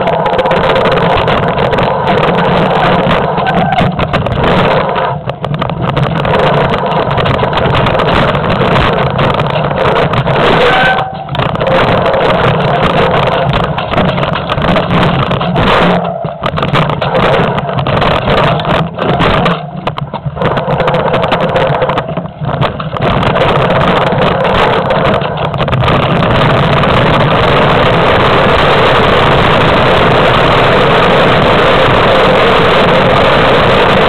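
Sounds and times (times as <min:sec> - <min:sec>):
bike rattling over trail: 0:00.0 - 0:34.0
jolts and knocks: 0:00.0 - 0:34.0
wind buffeting microphone: 0:00.0 - 0:34.0.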